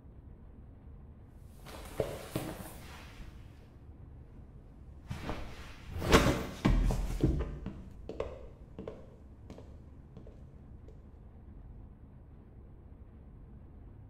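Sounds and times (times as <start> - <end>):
heavy thud: 5.1 - 8.1
boot footsteps on stage floor: 6.0 - 11.0.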